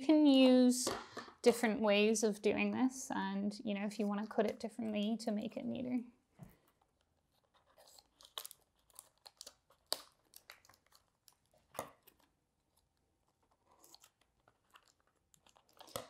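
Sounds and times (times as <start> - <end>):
faint crinkling: 3.8 - 16.0.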